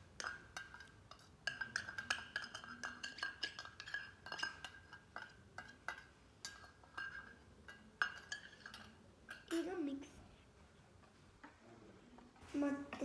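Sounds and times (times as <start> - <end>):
spoon clinking in metal bowl: 0.2 - 9.8.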